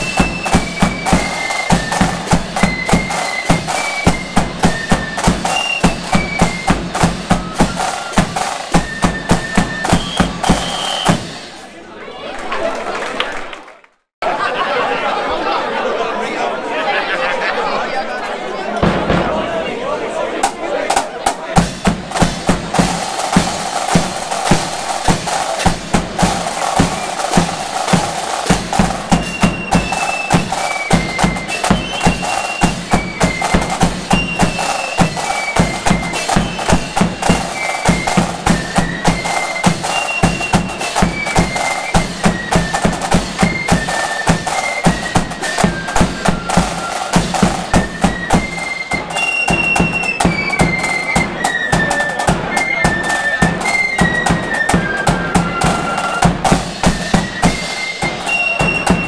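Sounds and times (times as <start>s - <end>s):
bass drum beats: 0.0s - 11.4s, 21.5s - 43.8s
high flute melody: 0.0s - 11.5s, 22.1s - 59.0s
cymbals clashing: 0.0s - 11.7s, 21.6s - 59.0s
side drums rattling: 0.0s - 11.8s, 18.8s - 19.7s, 20.4s - 59.0s.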